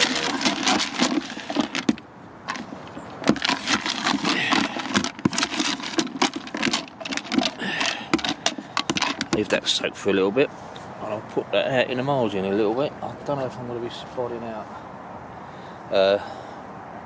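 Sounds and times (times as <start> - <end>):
spoon stirring baits in bucket: 0.0 - 9.6.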